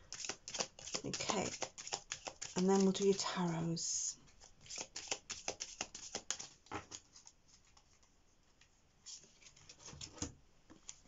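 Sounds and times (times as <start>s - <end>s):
cards being shuffled: 0.1s - 2.9s, 4.4s - 8.0s.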